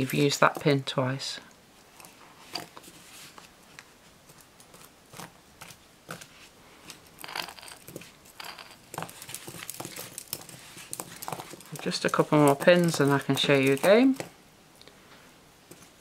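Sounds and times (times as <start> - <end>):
thread rustling: 1.9 - 14.3
wooden bobbins clicking: 4.3 - 14.4.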